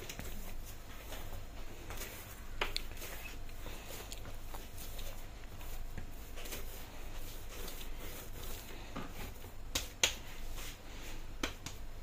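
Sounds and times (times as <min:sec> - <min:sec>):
hands kneading dough: 0:00.0 - 0:12.0
dough slapping on board: 0:07.5 - 0:10.8, 0:11.4 - 0:11.9.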